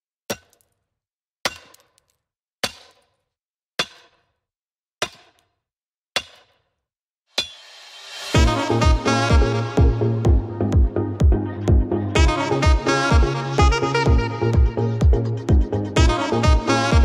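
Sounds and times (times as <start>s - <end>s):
sharp percussive hits: 7.4s - 9.0s.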